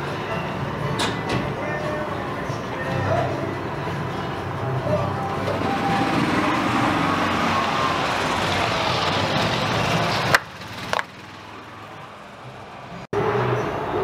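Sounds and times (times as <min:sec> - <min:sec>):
car engine passing: 0:03.1 - 0:14.0.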